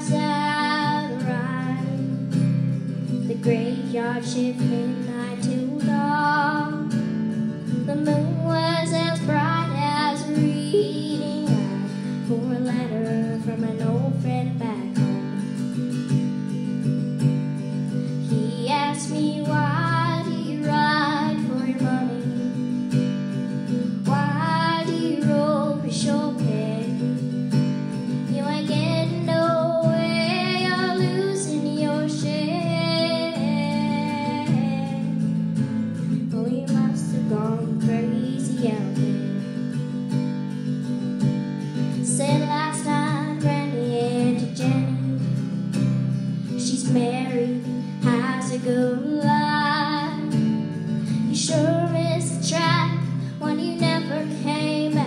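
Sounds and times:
woman singing: 0:00.0 - 0:15.8, 0:17.8 - 0:40.0, 0:41.8 - 0:55.0
acoustic guitar: 0:00.0 - 0:55.0.

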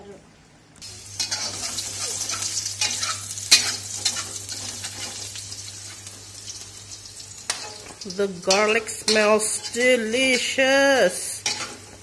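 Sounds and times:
garlic sizzling in hot oil: 0:00.8 - 0:12.0
metal spatula scraping pan: 0:08.4 - 0:12.0.

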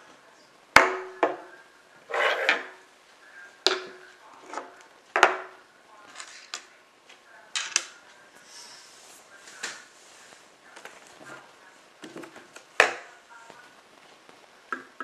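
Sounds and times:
metal sliding scrape: 0:02.1 - 0:02.8.

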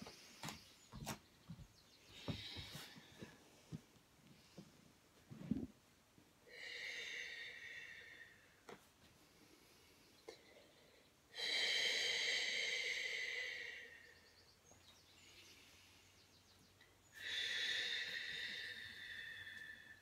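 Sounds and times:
person breathing deeply: 0:06.4 - 0:08.6, 0:09.2 - 0:14.4, 0:17.1 - 0:20.0.

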